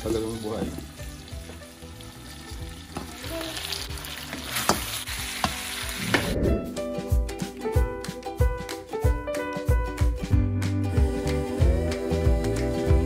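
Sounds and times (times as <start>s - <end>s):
meat sizzling in a pan: 0.0s - 6.3s
background music: 0.0s - 13.0s.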